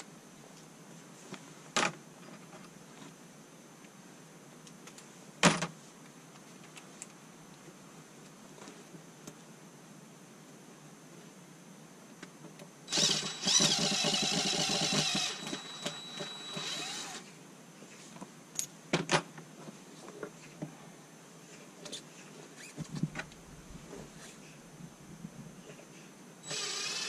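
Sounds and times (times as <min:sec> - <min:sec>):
cordless drill motor whining: 0:12.9 - 0:17.3, 0:26.4 - 0:27.0.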